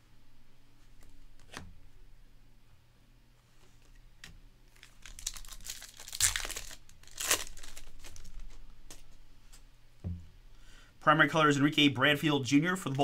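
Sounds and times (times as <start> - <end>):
foil wrapper crinkling and tearing: 4.7 - 9.0.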